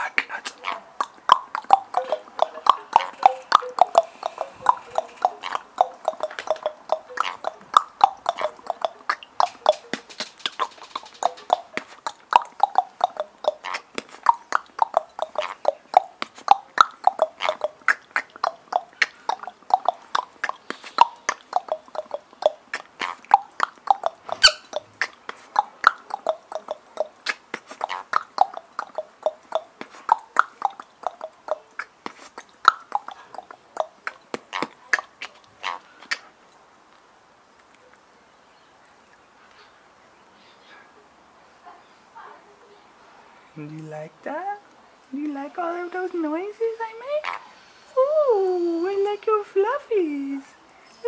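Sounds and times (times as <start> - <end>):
man beatboxing: 0.0 - 10.0.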